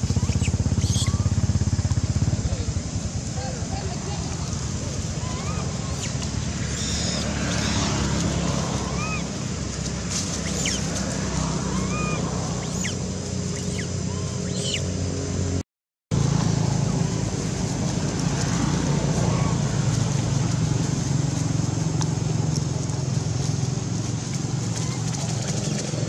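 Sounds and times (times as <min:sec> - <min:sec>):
short arched chirping calls: 0:00.0 - 0:01.5, 0:05.0 - 0:09.4, 0:10.3 - 0:11.0, 0:11.6 - 0:15.1
outdoor background rumble: 0:00.0 - 0:26.0.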